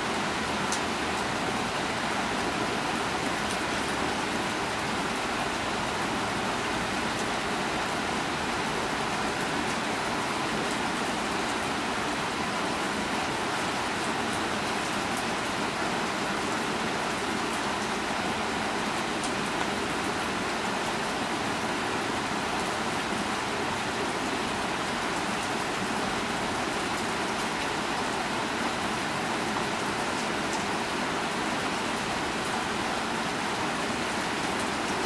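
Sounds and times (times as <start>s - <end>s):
steady rain hiss: 0.0s - 35.0s.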